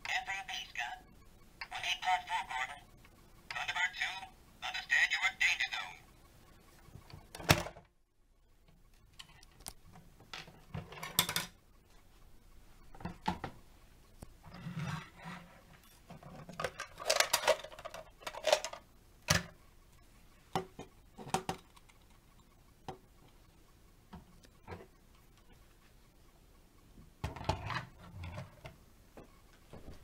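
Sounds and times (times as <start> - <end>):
plastic scraping on tabletop: 14.5 - 15.6
plastic toy parts clicking: 16.4 - 19.6.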